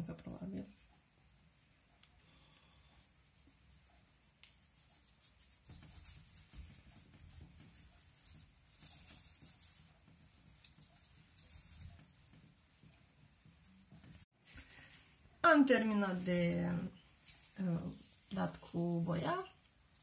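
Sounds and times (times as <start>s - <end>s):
hands rubbing and patting fat: 3.1s - 14.6s, 17.2s - 20.0s.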